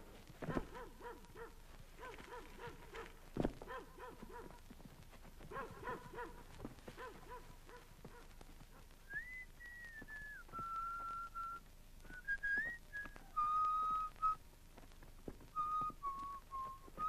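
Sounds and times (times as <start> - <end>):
person whistling slow tune: 9.1 - 14.4, 15.5 - 17.0.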